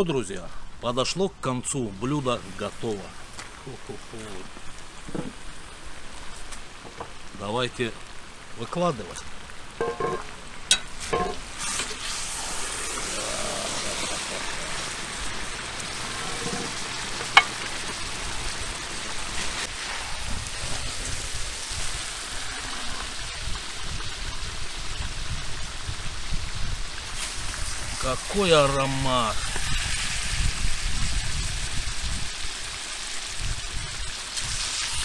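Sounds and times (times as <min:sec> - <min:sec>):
stew sizzling and simmering: 0:00.4 - 0:35.0
knocks on pot: 0:09.8 - 0:10.3.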